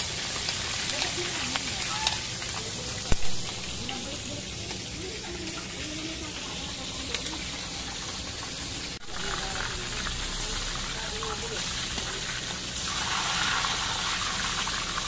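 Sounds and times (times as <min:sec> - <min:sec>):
meat sizzling in hot oil: 0:00.0 - 0:15.0.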